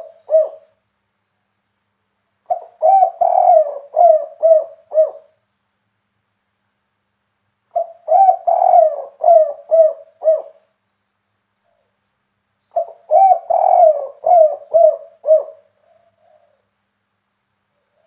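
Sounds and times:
dove cooing: 0.0 - 0.8, 2.4 - 5.4, 7.7 - 10.7, 12.7 - 16.8, 17.7 - 18.0.

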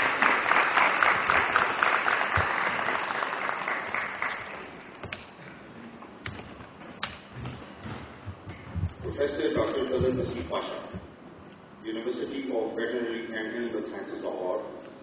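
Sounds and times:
audience applauding: 0.0 - 4.8.

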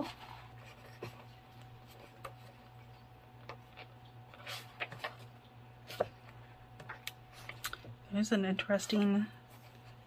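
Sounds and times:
book pages turning: 0.0 - 7.9
faint steady hum: 0.0 - 10.0.

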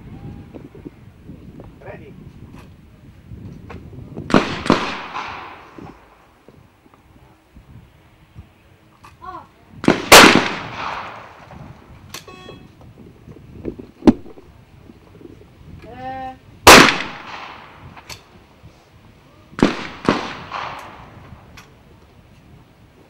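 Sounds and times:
shotgun shots echoing: 4.3 - 5.8, 9.8 - 11.5, 16.7 - 17.8, 19.6 - 21.2.

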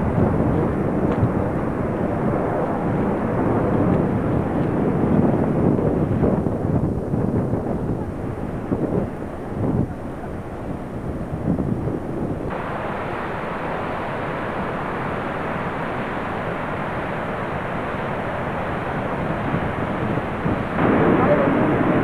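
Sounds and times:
fast river rushing: 12.0 - 22.0
waterfall roaring: 12.0 - 22.0.

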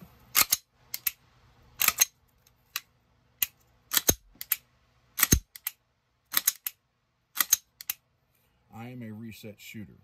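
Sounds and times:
pistol trigger clicks: 1.8 - 2.1, 2.7 - 4.6, 5.2 - 6.8, 7.4 - 8.0.

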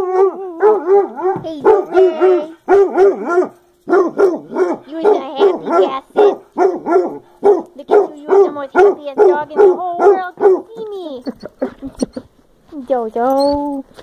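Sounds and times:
dog yelping barks: 0.0 - 12.2.

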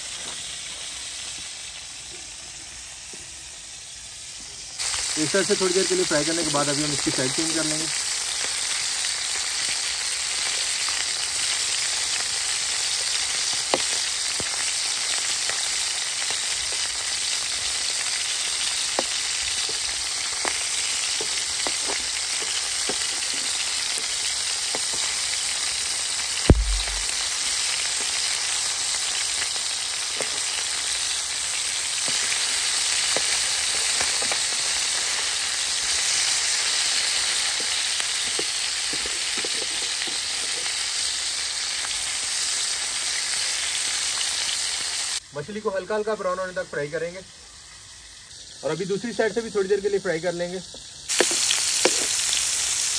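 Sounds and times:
fish sizzling in oil: 0.0 - 52.9
loud knock: 26.5 - 27.1
spatulas tapping and scraping: 51.1 - 52.2.

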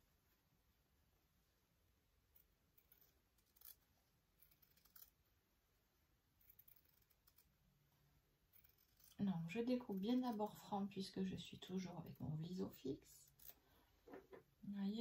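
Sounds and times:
scissors snipping fabric: 2.3 - 5.2, 6.4 - 7.6, 8.5 - 10.7.

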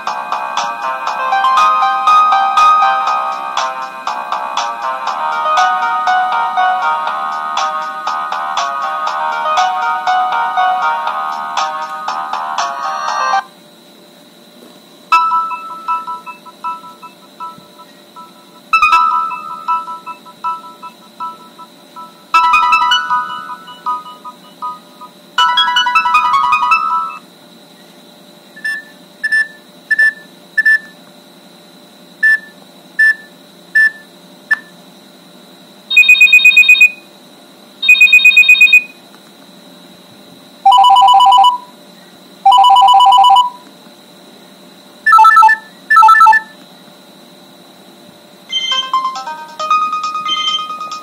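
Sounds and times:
melodic ringtone: 0.8 - 3.8, 18.2 - 24.8, 25.4 - 27.2, 36.0 - 37.0, 37.9 - 38.9, 40.7 - 41.7, 42.5 - 43.6, 45.1 - 46.5, 48.5 - 51.0
high trilling phone ring: 35.9 - 37.0, 37.8 - 38.9, 40.7 - 41.7, 42.5 - 43.6, 45.1 - 46.5
short electronic beeps: 35.9 - 37.0, 37.8 - 38.9, 45.1 - 46.6.

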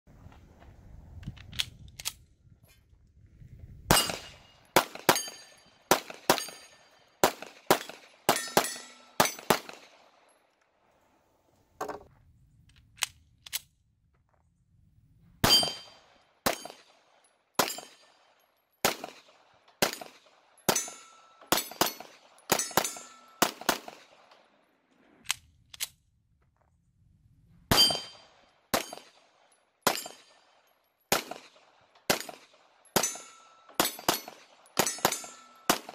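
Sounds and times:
pistol shots cracking: 3.9 - 10.3, 15.4 - 24.5, 27.7 - 35.9.

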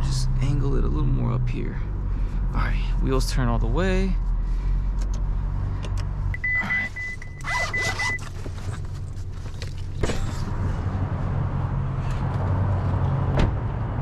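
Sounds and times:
car warning chime beeping: 6.3 - 8.2.

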